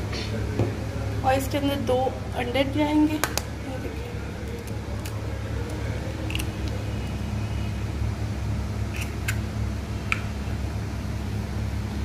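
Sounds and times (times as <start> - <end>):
steady low hum: 0.0 - 12.0
eggshells cracking: 4.5 - 6.8.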